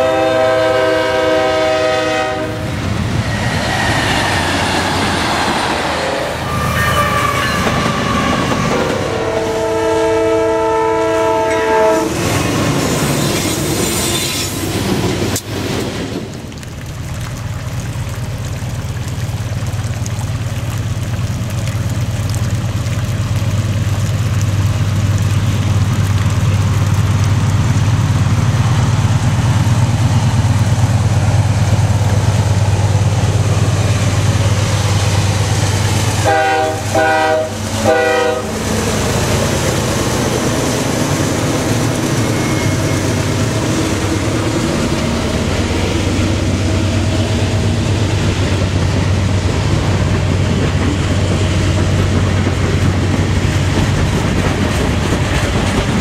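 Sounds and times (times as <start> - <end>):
train horn blasts: 0.0 - 2.8, 6.0 - 12.4, 36.2 - 38.7
train cars rolling by: 0.0 - 16.5, 28.0 - 56.0
diesel locomotive engine rumble: 0.0 - 56.0.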